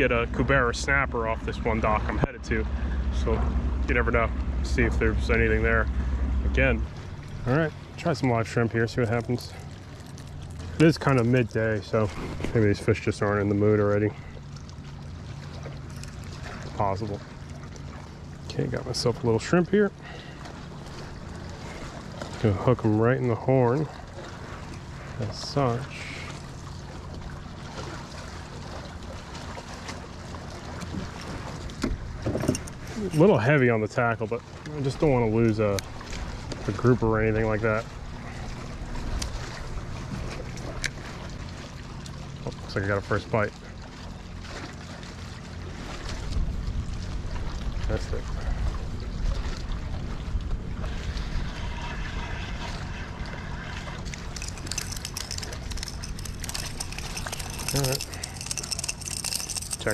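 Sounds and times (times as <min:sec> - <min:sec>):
water lapping against a hull: 0:00.0 - 0:59.9
wind rumble on microphone: 0:46.0 - 0:59.9
fish splashing at surface: 0:51.3 - 0:59.9
spinning reel being cranked: 0:54.2 - 0:59.9.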